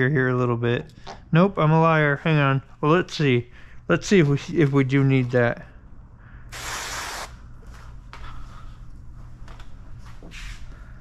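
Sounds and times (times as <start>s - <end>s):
steady low hum: 0.0s - 11.0s
spray bottle spritzing: 6.5s - 7.4s.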